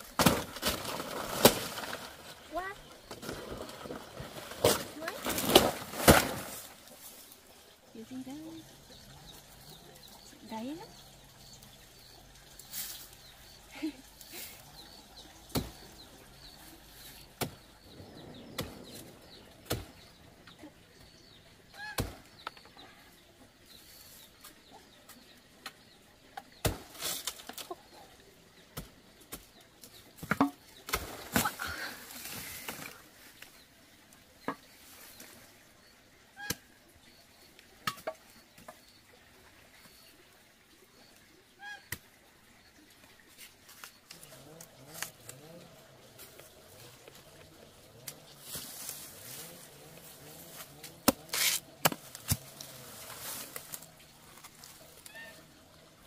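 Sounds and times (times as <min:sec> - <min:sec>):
rustling of banana leaves: 0:00.0 - 0:08.3, 0:26.6 - 0:33.6, 0:43.3 - 0:55.8.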